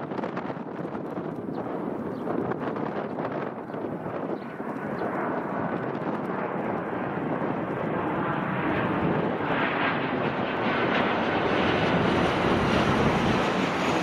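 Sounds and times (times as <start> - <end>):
jet engine roar: 0.0 - 14.0.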